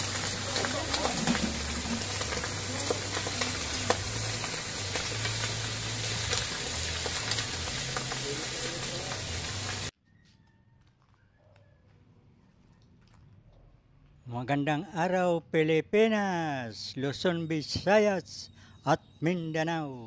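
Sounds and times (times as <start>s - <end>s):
meat frying in hot oil: 0.0s - 9.9s.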